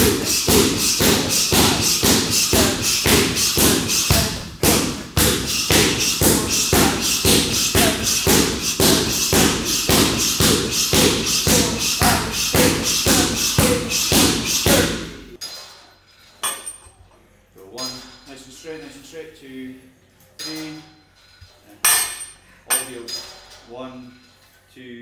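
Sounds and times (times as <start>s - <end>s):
fast rhythmic thumps: 0.0s - 15.1s.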